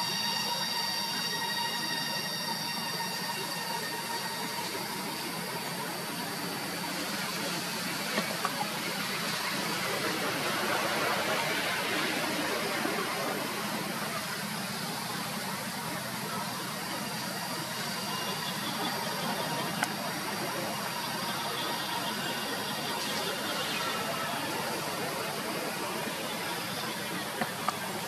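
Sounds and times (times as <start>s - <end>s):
steady outdoor hiss: 0.0s - 28.0s.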